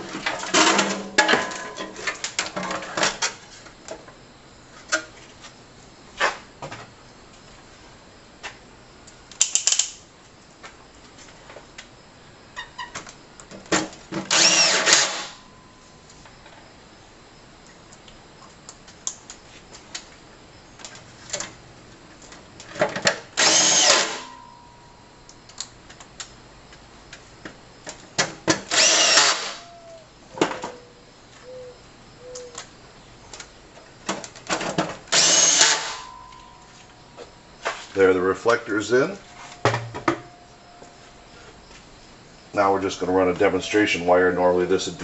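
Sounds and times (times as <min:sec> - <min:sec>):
cordless drill whine: 0:14.3 - 0:15.5, 0:23.4 - 0:24.5, 0:28.6 - 0:30.0, 0:35.1 - 0:36.5.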